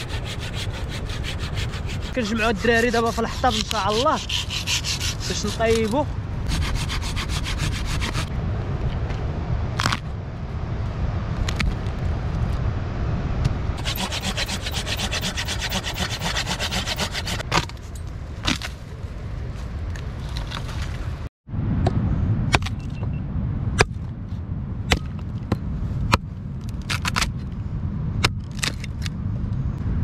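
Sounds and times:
scratchy rubbing of brushwood: 0.0 - 8.3, 13.8 - 17.4
low rumble: 7.7 - 13.9, 17.9 - 30.0.

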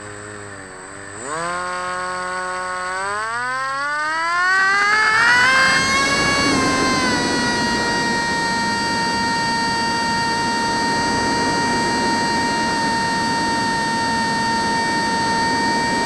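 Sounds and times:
electric motor high whine: 0.0 - 16.0
wind rush: 5.3 - 16.0.

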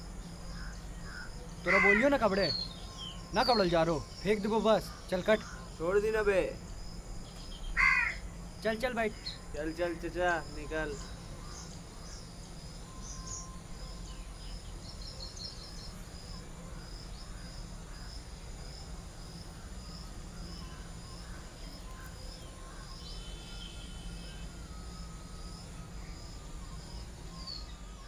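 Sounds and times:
bird chirps: 0.3 - 5.8, 7.2 - 16.1.

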